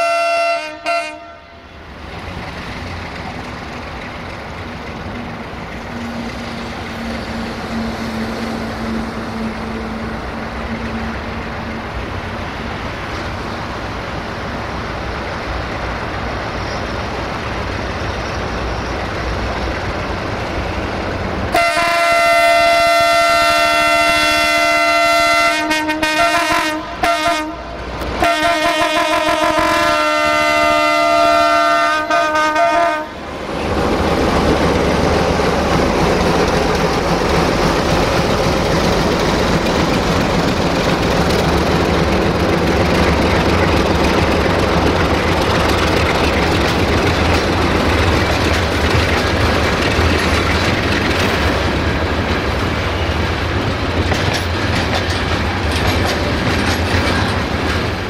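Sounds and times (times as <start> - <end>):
locomotive horn blasts: 0.0 - 1.7, 21.5 - 33.2
diesel locomotive engine: 0.0 - 58.0.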